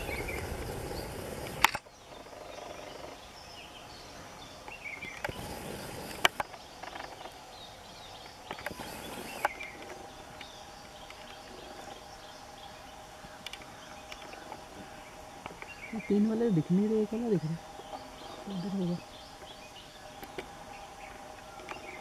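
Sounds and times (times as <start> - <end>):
bird chirps: 0.0 - 22.0
sharp clicks: 1.4 - 1.9.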